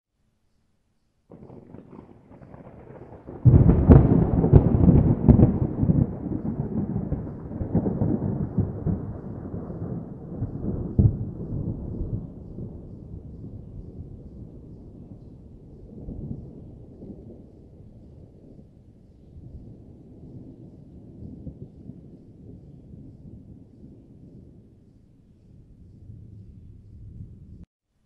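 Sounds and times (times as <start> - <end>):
thunder crash with sharp cracks: 1.3 - 13.8
rolling thunder rumble: 1.3 - 27.7.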